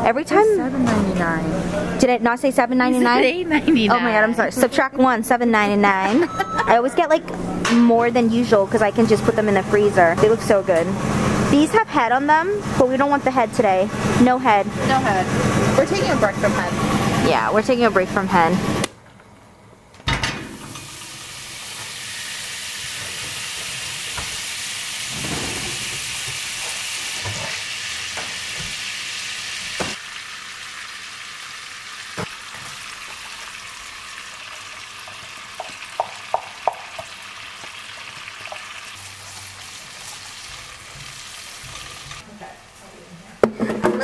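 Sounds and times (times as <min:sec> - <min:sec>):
butter sizzling in a skillet: 0:20.8 - 0:42.2.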